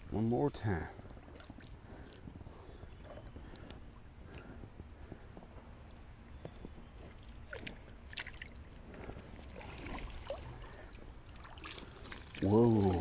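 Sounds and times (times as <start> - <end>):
creek water sloshing and splashing: 1.0 - 4.5, 7.0 - 13.0
water streaming and dripping: 7.0 - 13.0.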